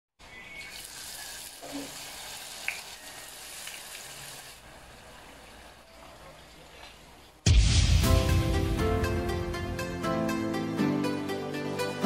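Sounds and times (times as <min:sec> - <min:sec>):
oil sizzling in deep-frying: 0:00.4 - 0:05.4.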